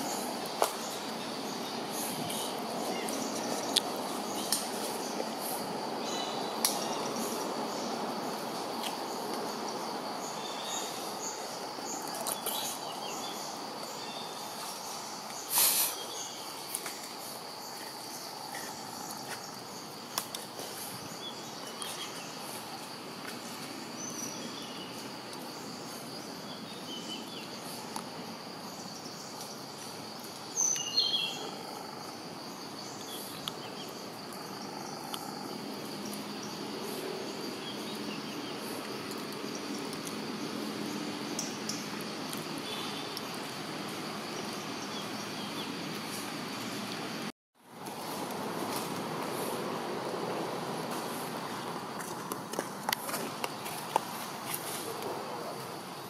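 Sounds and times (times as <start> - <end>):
short insect chirps: 0.0 - 40.2
insects droning: 0.0 - 56.0.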